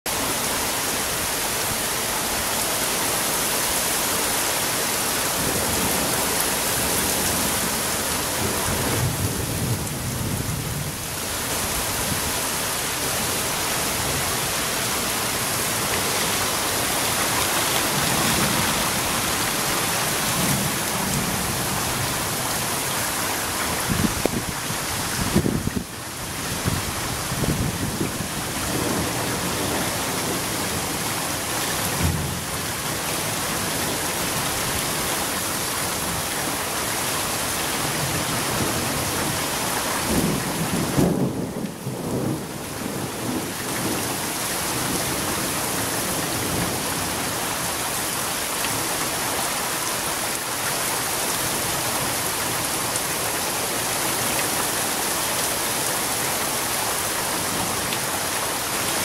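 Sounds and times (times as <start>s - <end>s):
heavy rain pouring: 0.1s - 59.0s
thunder rumbles: 5.4s - 12.3s, 31.9s - 32.6s, 40.0s - 45.4s.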